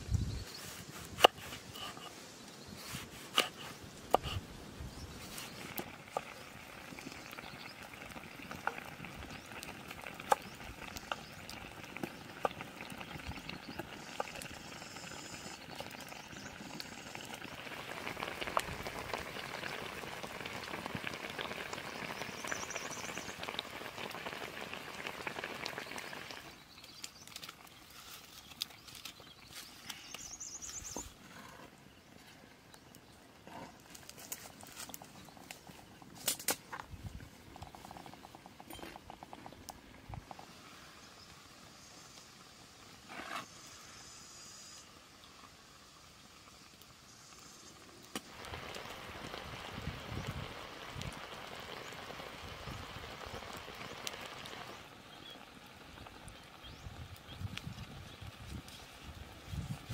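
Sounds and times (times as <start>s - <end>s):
wood fire crackling: 0.6s - 31.3s, 32.1s - 41.5s, 45.2s - 59.9s
fish frying in hot oil: 5.1s - 31.0s, 37.5s - 59.9s.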